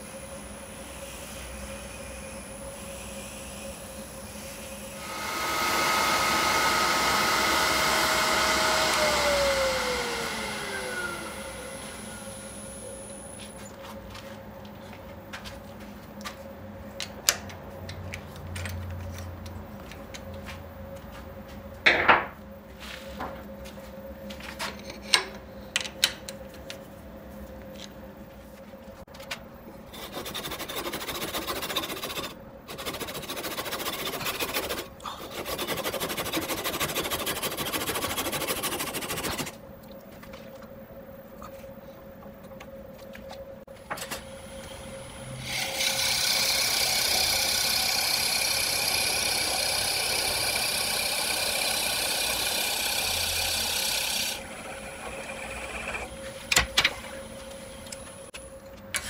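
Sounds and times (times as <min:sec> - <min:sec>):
machine whine: 0:00.0 - 0:14.2, 0:40.2 - 0:59.0
tool rasping on spinning wood: 0:05.0 - 0:12.3, 0:29.9 - 0:39.6, 0:45.5 - 0:56.1.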